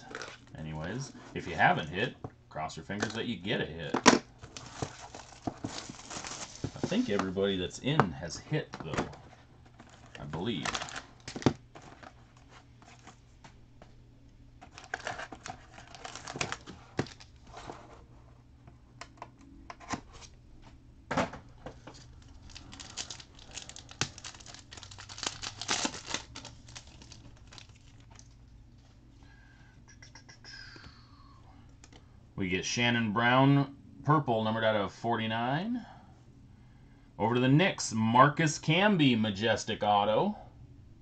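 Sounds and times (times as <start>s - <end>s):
foil wrappers crinkling and tearing: 0.0s - 0.6s, 4.4s - 7.2s, 9.8s - 12.2s, 14.6s - 17.6s, 21.8s - 28.4s.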